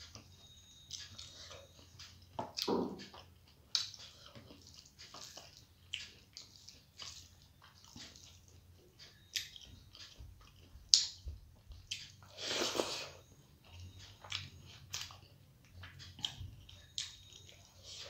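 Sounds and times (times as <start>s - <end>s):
person chewing: 0.1s - 18.0s
wet squishing of rice mixing: 3.7s - 12.6s.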